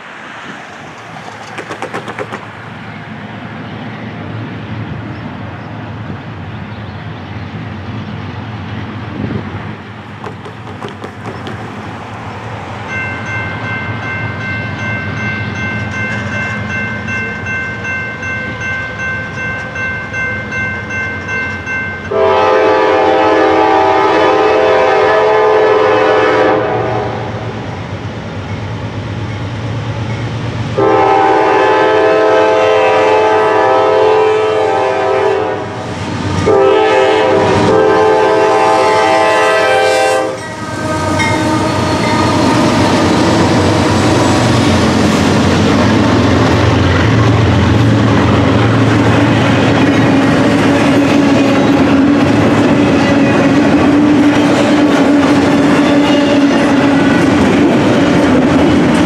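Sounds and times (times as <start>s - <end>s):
diesel locomotive rumble: 0.0s - 59.0s
crossing warning bell ringing: 12.7s - 23.1s, 28.4s - 31.6s, 39.2s - 42.8s
locomotive horn blast: 22.1s - 27.5s, 30.8s - 35.8s, 36.4s - 44.0s.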